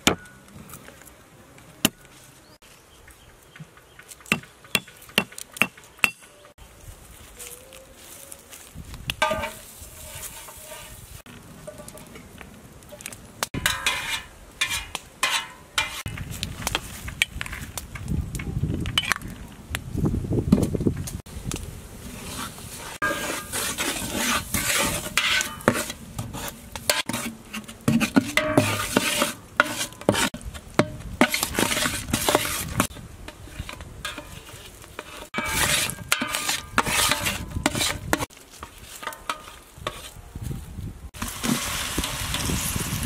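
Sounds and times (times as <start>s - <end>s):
metal spoon scraping a pot: 9.2s - 12.2s, 13.6s - 16.1s, 22.2s - 30.4s, 31.2s - 40.2s
sauce bubbling and sizzling: 41.2s - 43.0s.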